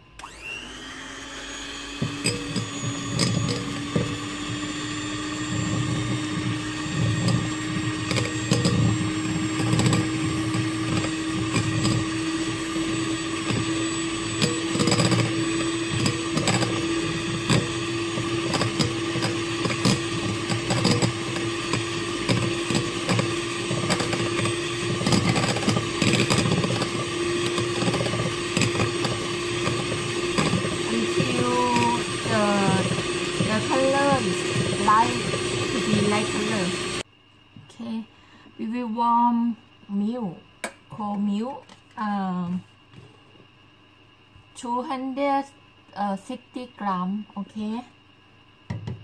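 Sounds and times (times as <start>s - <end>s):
electric hand mixer humming: 0.0s - 37.1s.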